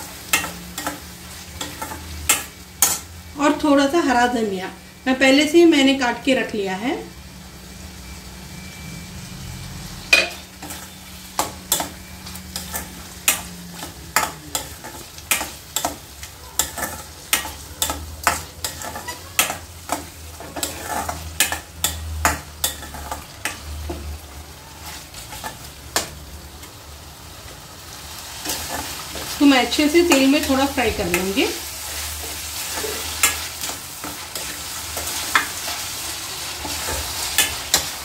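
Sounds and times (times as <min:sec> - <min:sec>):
meat sizzling in oil: 0:00.0 - 0:05.1, 0:07.1 - 0:38.0
spoon scraping metal pan: 0:10.2 - 0:23.7, 0:28.4 - 0:38.0.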